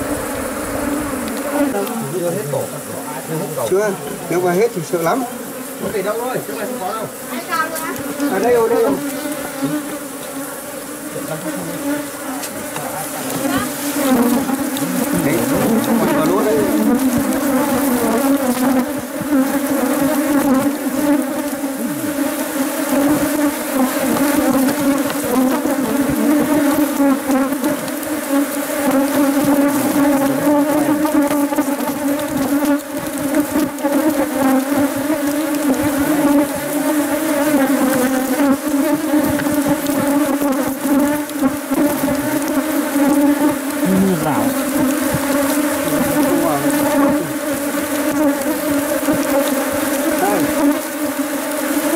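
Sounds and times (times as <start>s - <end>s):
bees buzzing: 0.0s - 51.9s.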